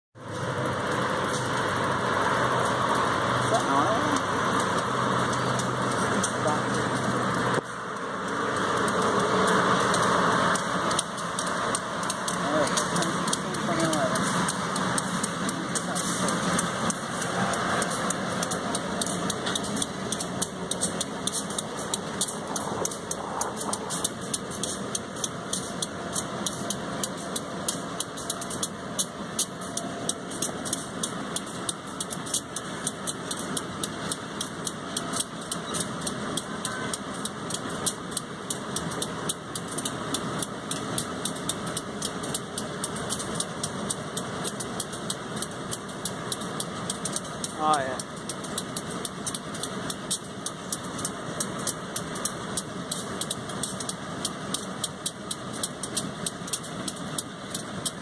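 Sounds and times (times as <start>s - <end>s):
diesel locomotive engine running: 0.2s - 58.0s
quick irregular ticking: 2.5s - 58.0s.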